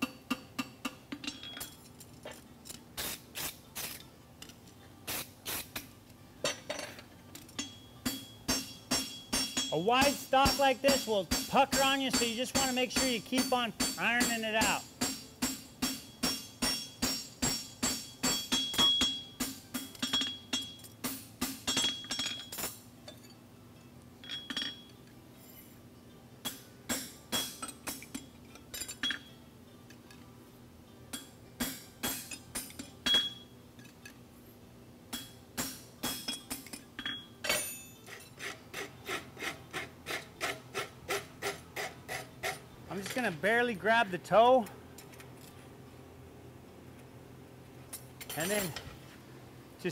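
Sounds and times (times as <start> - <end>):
hammer striking horseshoe on anvil: 0.0 - 1.8, 5.1 - 22.8, 26.4 - 29.3, 31.1 - 33.9, 35.1 - 43.3
file scraping metal: 38.0 - 42.7.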